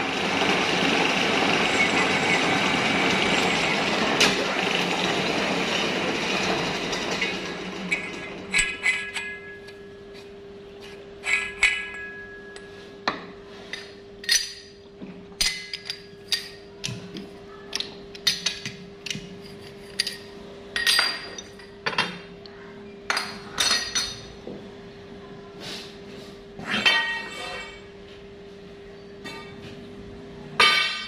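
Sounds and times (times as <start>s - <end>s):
steady hum: 0.0s - 17.6s.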